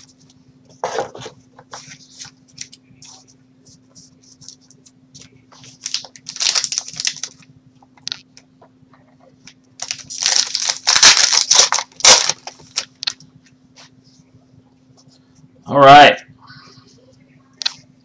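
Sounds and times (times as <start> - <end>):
wrapper crinkling and tearing: 5.2 - 7.4, 9.8 - 13.2.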